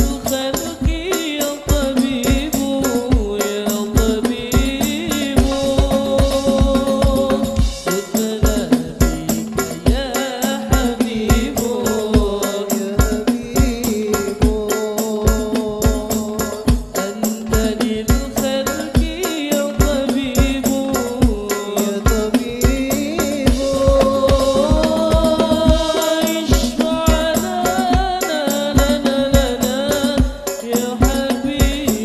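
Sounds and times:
hand-struck frame drums: 0.0 - 32.0
man singing into a microphone: 0.0 - 32.0
deep bass drum: 4.0 - 10.1, 22.1 - 28.1.

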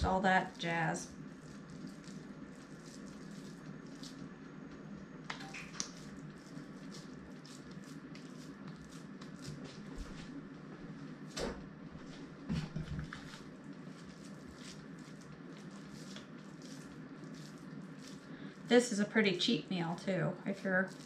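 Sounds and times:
hands squishing ground beef: 0.4 - 4.3, 5.5 - 11.4, 12.7 - 18.7, 20.6 - 21.0.

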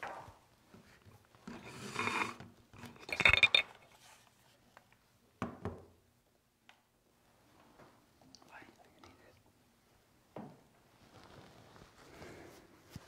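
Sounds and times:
dishes clinking: 1.6 - 3.8.

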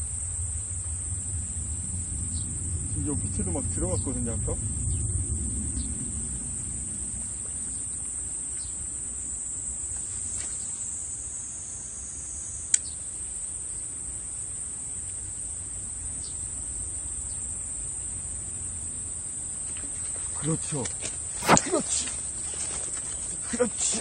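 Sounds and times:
low rumble: 0.0 - 9.2
insects droning: 0.0 - 24.0.

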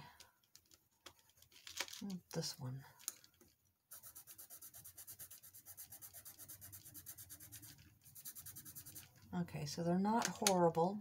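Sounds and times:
pencil scribbling on paper: 3.9 - 9.1.

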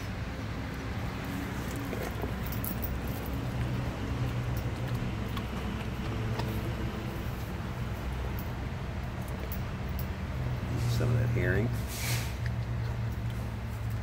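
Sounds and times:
dog licking and chewing food: 0.7 - 7.8.

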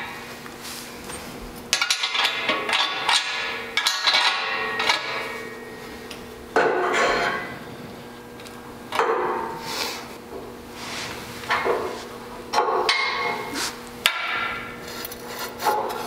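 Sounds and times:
metal bars clanking: 1.7 - 5.6, 6.6 - 7.6, 12.6 - 13.5.

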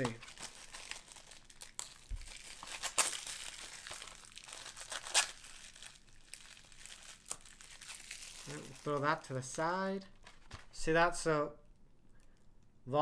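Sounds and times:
plastic wrap ripping: 0.0 - 9.4
plastic wrap crinkling: 0.0 - 10.8.

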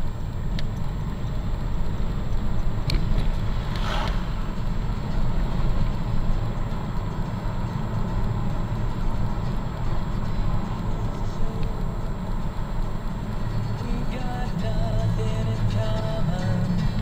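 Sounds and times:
car engine rumble: 0.0 - 17.0
road noise: 0.0 - 17.0
brief hiss: 3.6 - 4.6.

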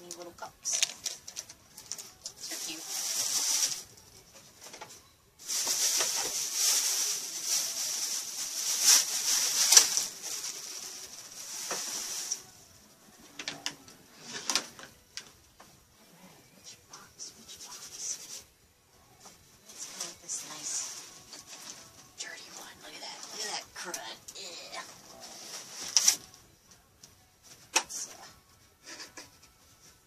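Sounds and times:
plastic packaging crinkling: 0.6 - 4.8, 5.4 - 12.6.

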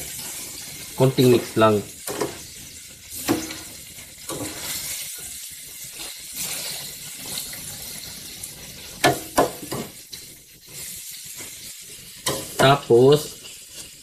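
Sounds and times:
vegetables sizzling in a pan: 0.0 - 14.0
metal spoon scraping a pan: 2.0 - 14.0.

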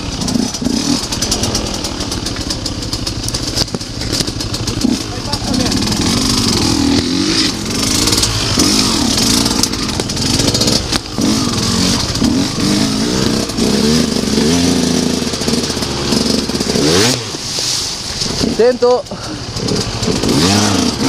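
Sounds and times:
knocks and clatter from bike: 0.0 - 18.6, 19.2 - 20.6
motorcycle engine revving: 0.0 - 21.0.

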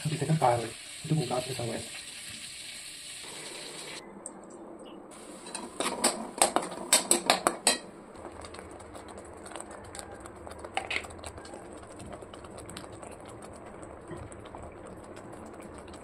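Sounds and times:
low steady hum: 3.2 - 16.0
spoon stirring thick paste: 5.5 - 16.0.

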